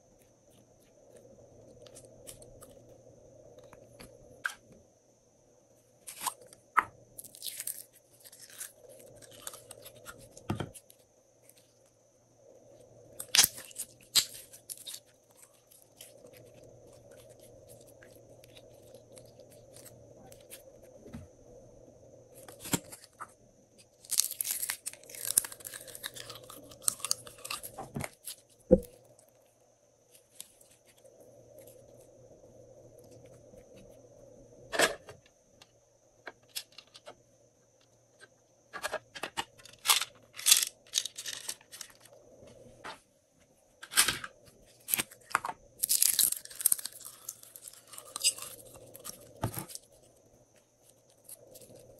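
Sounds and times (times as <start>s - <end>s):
faint steady hum: 0.0s - 51.9s
slime squishing and crackling: 24.0s - 28.5s.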